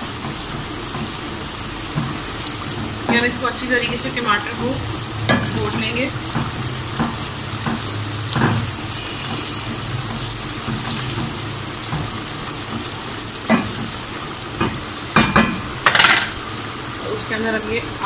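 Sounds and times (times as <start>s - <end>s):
sauce sizzling in a pot: 0.0s - 18.0s.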